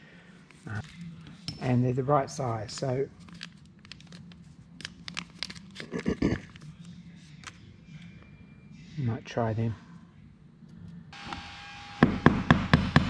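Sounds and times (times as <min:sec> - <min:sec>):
plastic packet crinkling: 0:03.2 - 0:06.7.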